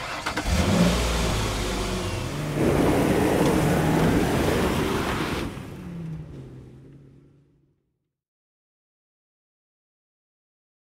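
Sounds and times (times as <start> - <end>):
vehicle engine revving: 0.0 - 7.6.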